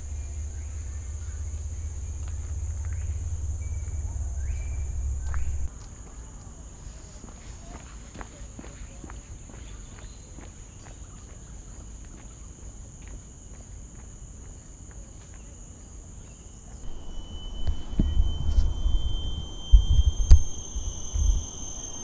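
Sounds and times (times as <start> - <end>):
high-pitched insect drone: 0.0 - 5.7, 16.8 - 22.0
low thumps and rumble: 1.5 - 5.7.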